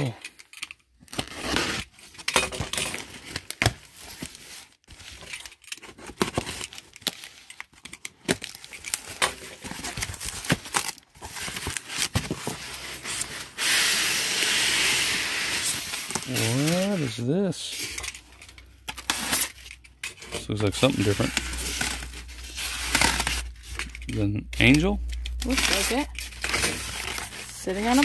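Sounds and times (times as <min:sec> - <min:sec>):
item sliding out of box: 0:11.3 - 0:18.1
cardboard flaps rustling: 0:15.6 - 0:17.2.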